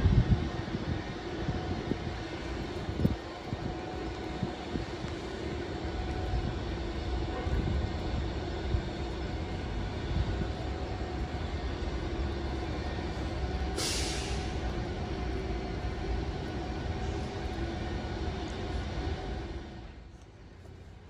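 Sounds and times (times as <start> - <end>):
train rumbling: 0.0 - 21.0
air release hiss: 13.7 - 14.6.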